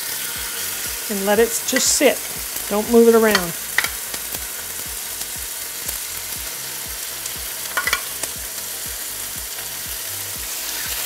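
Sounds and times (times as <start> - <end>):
chicken sizzling in oil: 0.0 - 11.0
metal tongs clattering: 7.7 - 8.1.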